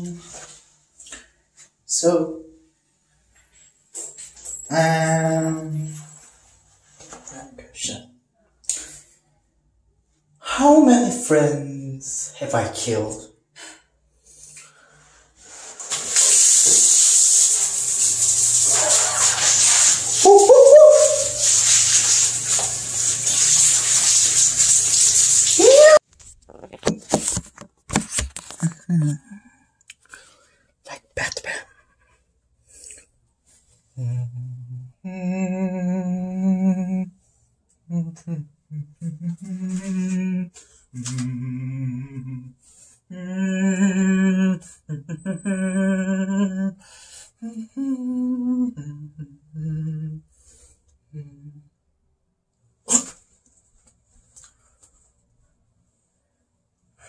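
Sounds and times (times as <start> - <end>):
shower head spraying water: 15.7 - 26.0
person calling out: 20.2 - 21.5, 25.6 - 26.0
person humming a slow tune: 34.0 - 37.2, 37.9 - 46.8, 47.4 - 50.3, 51.1 - 51.8.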